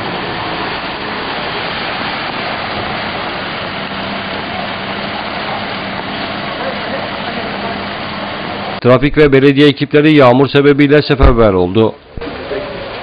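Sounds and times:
van engine running low: 0.0s - 8.8s
heavy rain on flooded street: 0.0s - 13.0s.

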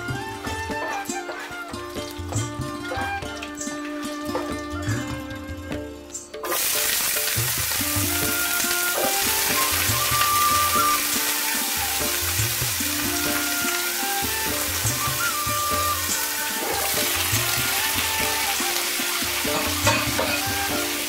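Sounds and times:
instrumental music: 0.0s - 21.0s
vegetables sizzling in oil: 6.4s - 21.0s.

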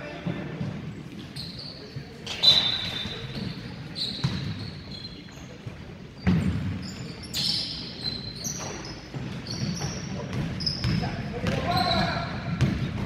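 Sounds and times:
sneaker squeaks: 0.0s - 13.0s.

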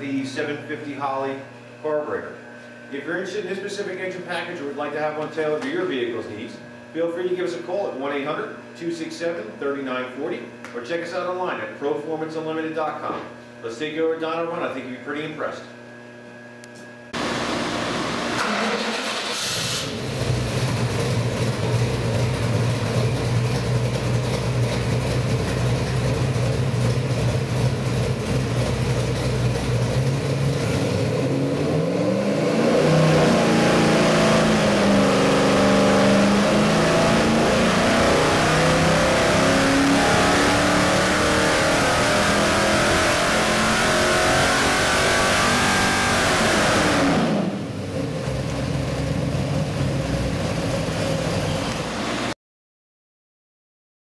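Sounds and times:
engine revving on dynamometer: 17.2s - 22.8s, 30.0s - 48.0s.

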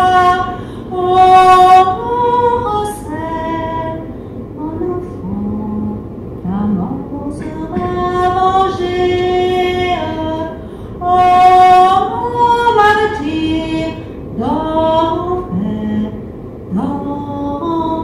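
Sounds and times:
woman singing unaccompanied: 0.0s - 18.0s
woman breathing between phrases: 0.6s - 0.9s, 10.6s - 11.0s.

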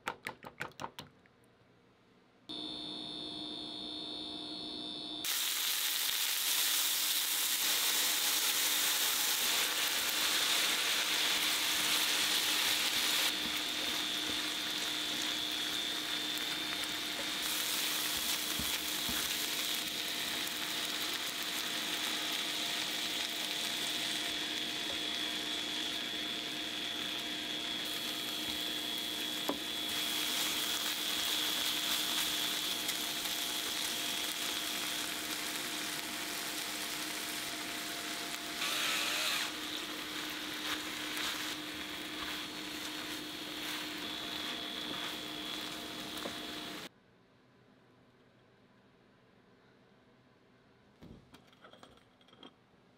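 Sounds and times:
faint steady hum: 1.2s - 5.2s
food sizzling in a frying pan: 5.2s - 46.9s.

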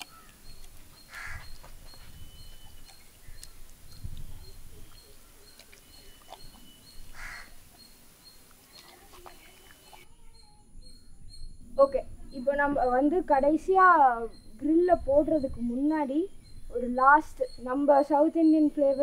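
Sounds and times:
crow cawing: 0.0s - 0.4s, 1.1s - 1.5s, 7.1s - 7.6s.

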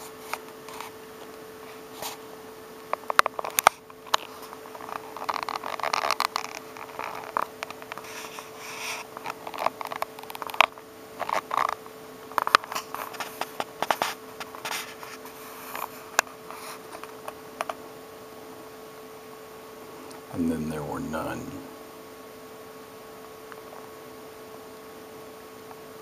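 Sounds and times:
scratchy rustles: 3.3s - 11.8s, 12.4s - 17.1s.

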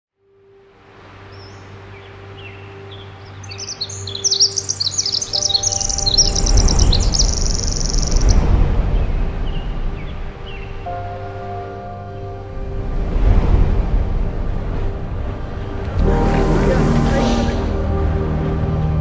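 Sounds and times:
songbirds chirping: 0.7s - 13.1s, 14.1s - 19.0s
low rushing swell: 2.0s - 19.0s.

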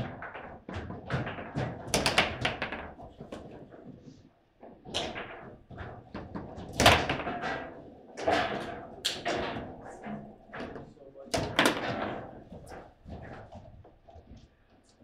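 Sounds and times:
table football ball knocks: 11.3s - 12.8s.

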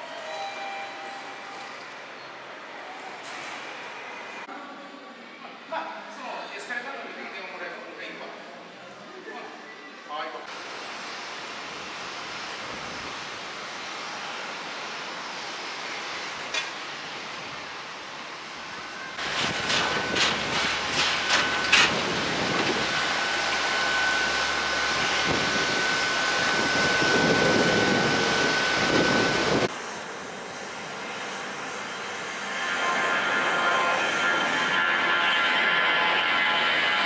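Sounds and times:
jet engines hissing: 10.5s - 37.0s
high whine: 10.6s - 37.0s.

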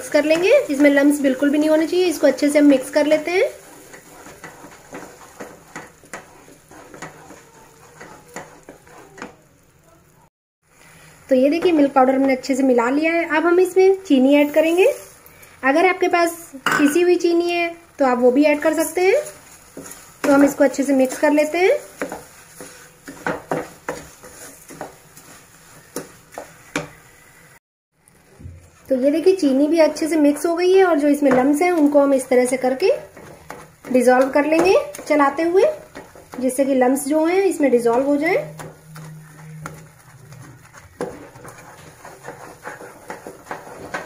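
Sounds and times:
wooden spatula scraping a pan: 0.0s - 9.7s, 18.1s - 27.4s, 28.6s - 44.0s.

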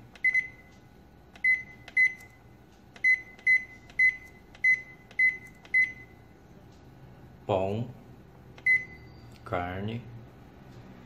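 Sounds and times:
rice cooker beeping: 3.0s - 6.2s, 8.6s - 9.3s.

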